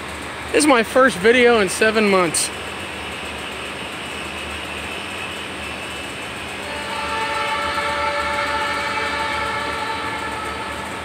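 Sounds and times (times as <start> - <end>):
train air horn: 6.6 - 11.0.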